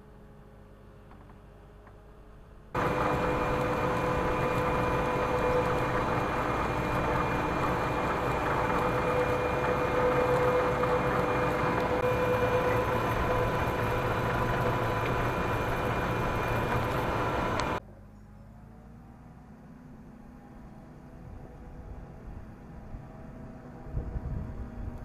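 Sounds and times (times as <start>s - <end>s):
faint distant hum: 0.0s - 25.0s
stone separator machine running: 2.8s - 17.8s.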